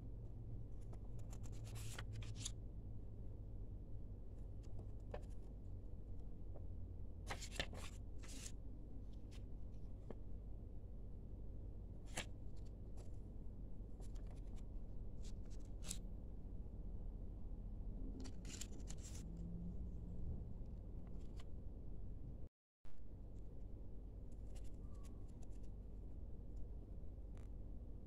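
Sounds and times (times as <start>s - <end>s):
steady low hum: 0.0s - 28.0s
paper rustling: 0.9s - 2.5s, 7.3s - 8.6s, 14.0s - 16.0s, 18.2s - 19.2s.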